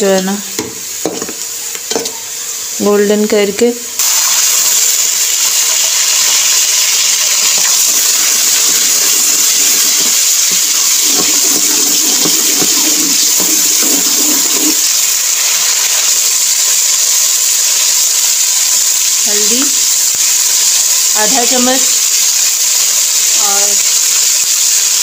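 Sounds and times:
onions sizzling in hot oil: 0.0s - 25.0s
spoon stirring in pot: 11.0s - 14.8s.

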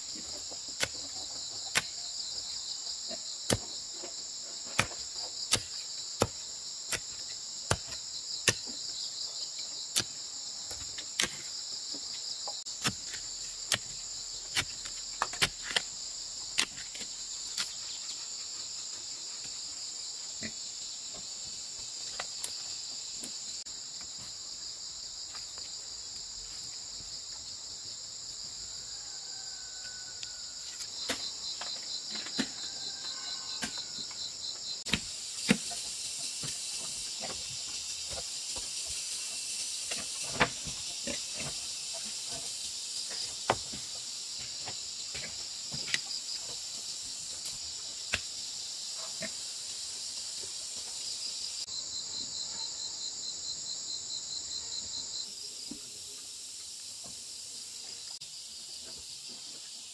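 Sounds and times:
insects chorus: 0.0s - 59.9s
digging tool chopping earth: 0.7s - 2.1s, 3.1s - 4.0s, 4.6s - 8.9s, 9.9s - 11.6s, 12.6s - 17.8s, 34.8s - 37.4s.

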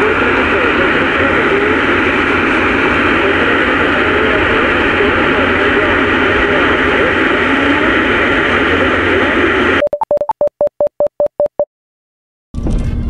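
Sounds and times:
radio static hiss: 3.0s - 9.8s
short electronic beeps: 9.8s - 11.7s.

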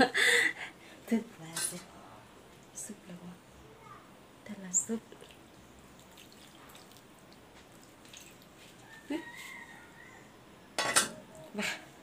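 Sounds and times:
faint dripping: 4.5s - 9.2s
gravy pouring over rice: 5.2s - 9.6s.

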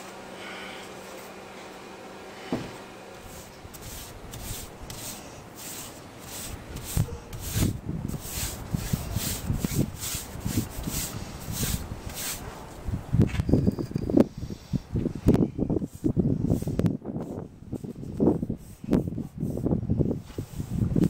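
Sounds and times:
faint steady hum: 0.0s - 20.2s
paintbrush swishing on wood: 2.4s - 12.7s, 15.8s - 20.9s.

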